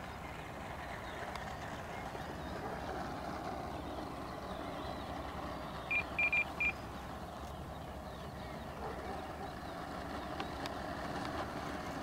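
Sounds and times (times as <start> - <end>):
high electronic beeps: 5.9 - 6.8.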